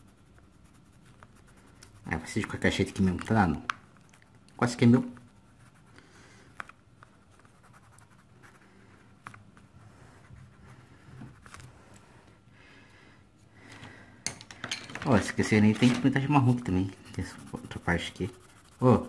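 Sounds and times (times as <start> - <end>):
pencil scratching on paper: 0.0 - 3.5, 4.1 - 6.2, 7.0 - 9.0, 9.9 - 11.8, 15.4 - 19.0.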